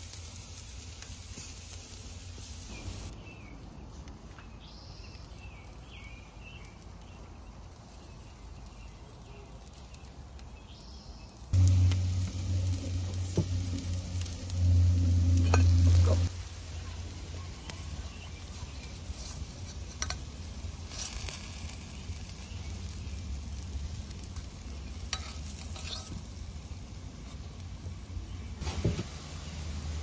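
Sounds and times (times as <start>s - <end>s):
steak sizzling in a pan: 0.0s - 3.1s, 11.5s - 27.0s
loud low hum: 11.6s - 16.3s
utensil clicks and scrapes: 25.1s - 26.2s.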